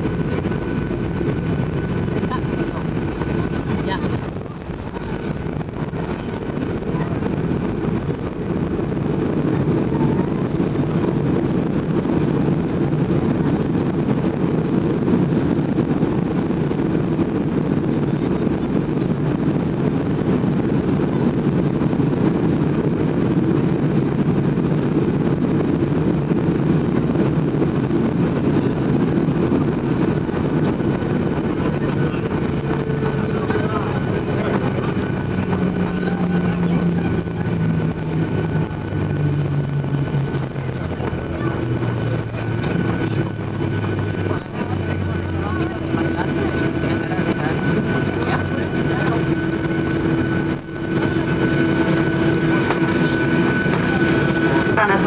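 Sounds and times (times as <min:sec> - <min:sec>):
airplane landing roar: 0:00.0 - 0:55.0.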